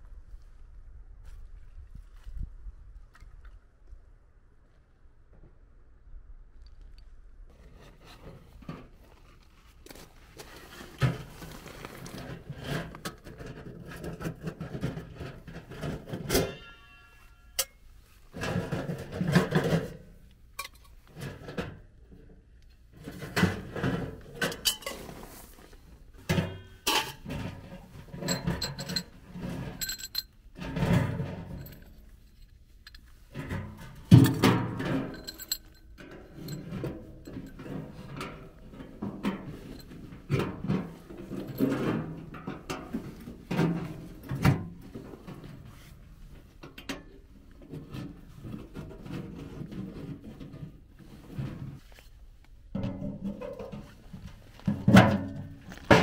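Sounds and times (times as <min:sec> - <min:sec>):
metal set down on gravel: 0:07.5 - 0:56.0
metal knocks and clanks: 0:12.2 - 0:21.9, 0:26.2 - 0:32.0, 0:33.3 - 0:45.6, 0:52.7 - 0:56.0
short ringing tone: 0:16.5 - 0:17.8.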